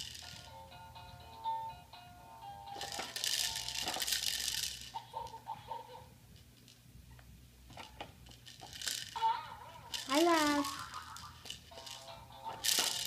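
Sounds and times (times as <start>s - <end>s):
beads rattling in plastic toy: 0.0s - 0.7s, 2.7s - 5.4s, 7.7s - 13.0s.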